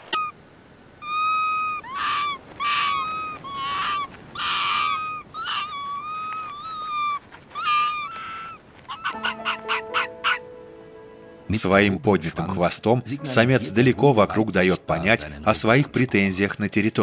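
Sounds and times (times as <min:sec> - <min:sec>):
animal calls: 0:00.0 - 0:00.4, 0:01.0 - 0:11.4.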